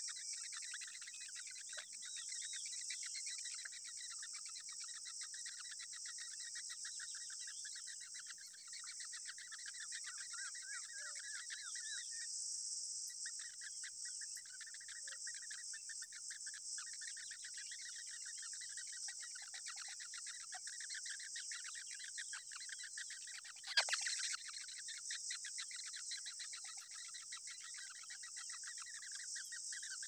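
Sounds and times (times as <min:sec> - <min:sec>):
nestlings begging calls: 0:21.7 - 0:24.9.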